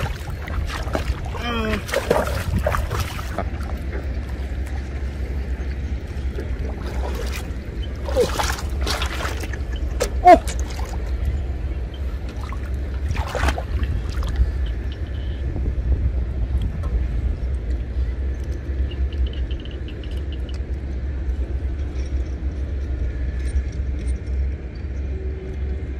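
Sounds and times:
water splashing and dripping: 0.0s - 4.9s, 6.3s - 11.1s, 12.2s - 15.0s
wind rumble on microphone: 0.0s - 25.9s.

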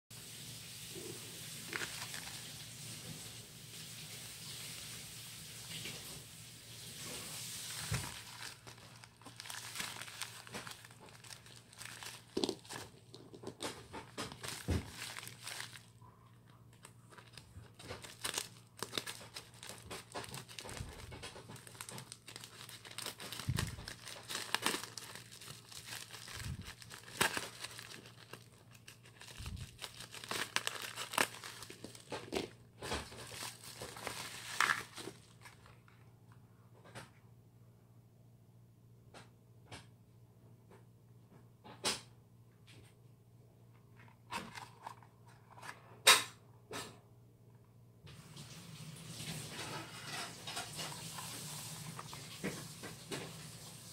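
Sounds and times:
plastic bag crinkling: 0.8s - 4.9s, 5.5s - 36.0s, 48.2s - 53.9s
scissors cutting plastic: 17.1s - 35.1s.

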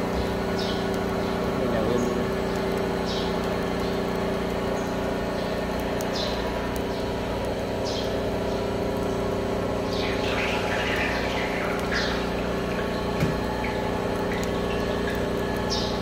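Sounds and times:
machine motor hum: 0.0s - 16.0s
high chirps: 9.8s - 16.0s.

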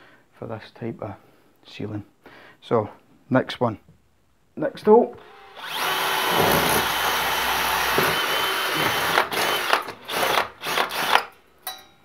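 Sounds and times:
power drill boring into plaster: 5.2s - 11.3s.

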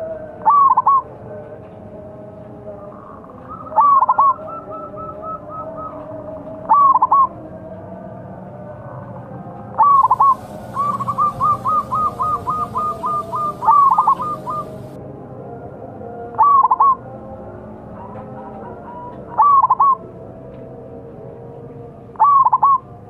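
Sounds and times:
doves cooing: 3.0s - 7.3s, 9.8s - 15.0s, 18.8s - 20.0s, 22.2s - 22.8s.

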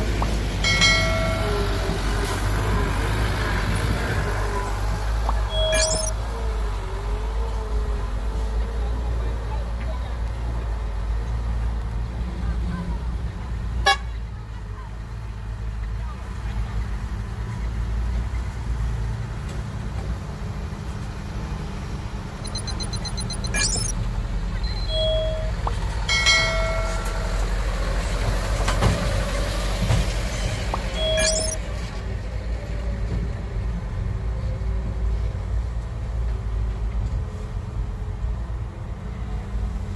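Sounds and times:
truck engines rumbling: 0.0s - 39.9s
high pulsing chime: 5.5s - 6.2s, 22.4s - 23.9s, 31.0s - 31.6s.

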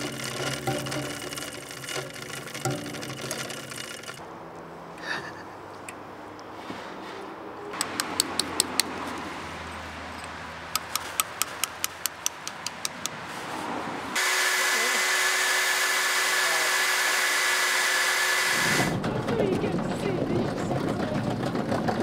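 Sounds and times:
angle grinder cutting stone: 0.0s - 4.2s, 14.2s - 18.9s
hammer tapping steel chisel: 10.8s - 13.2s.

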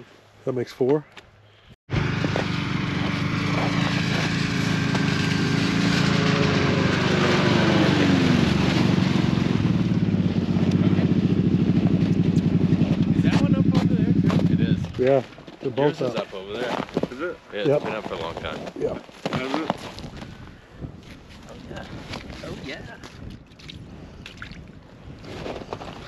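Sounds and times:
snowmobile engine running: 1.9s - 16.8s.

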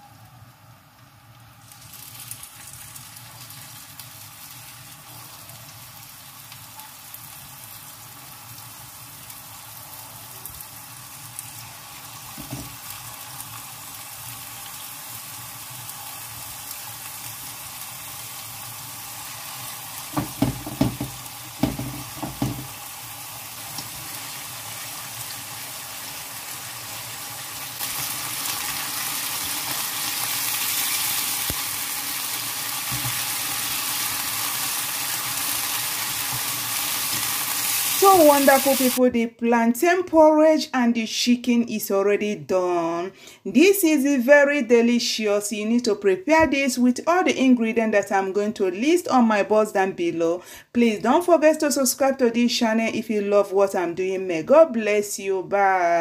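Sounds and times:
chicken sizzling in a pan: 0.0s - 39.0s
sharp knocks: 20.2s - 22.7s.

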